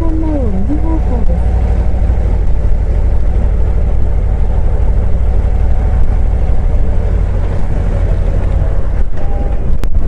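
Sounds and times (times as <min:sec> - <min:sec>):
motorcycle engine throbbing: 0:00.0 - 0:10.0.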